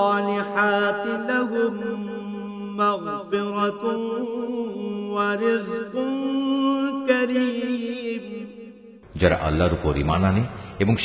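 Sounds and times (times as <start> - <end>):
man chanting melodically: 0.0 - 8.5.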